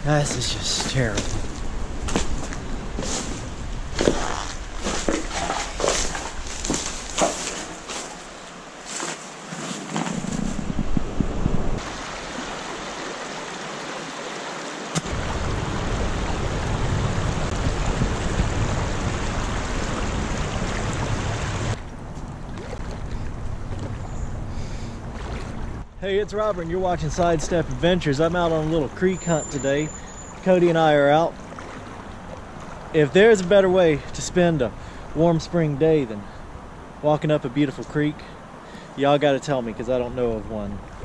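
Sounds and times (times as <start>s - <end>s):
creek water rushing: 0.0s - 10.1s, 11.8s - 41.0s
sharp splashes and knocks: 0.2s - 10.6s, 14.8s - 15.6s, 17.5s - 24.1s, 25.1s - 25.8s, 31.4s - 33.5s.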